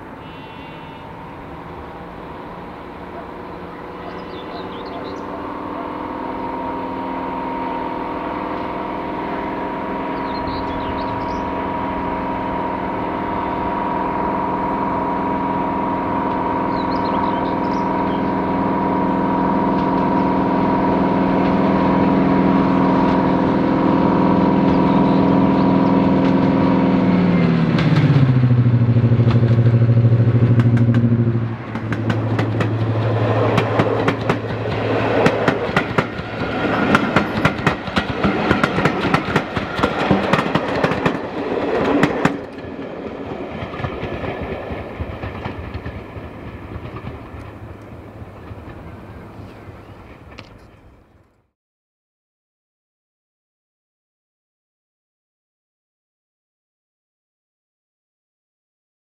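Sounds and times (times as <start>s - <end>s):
diesel locomotive engine: 0.0s - 51.5s
wheels clattering over rail joints: 24.5s - 51.0s.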